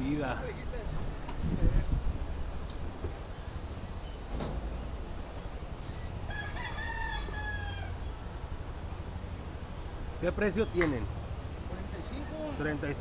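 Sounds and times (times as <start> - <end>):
low background noise: 0.0 - 13.0
rooster crowing: 6.2 - 8.2.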